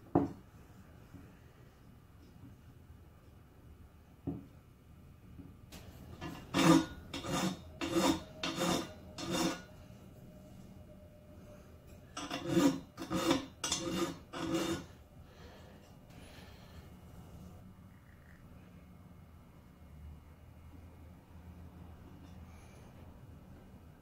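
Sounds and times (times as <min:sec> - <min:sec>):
metal scraping against metal: 0:05.8 - 0:10.7, 0:11.4 - 0:15.0.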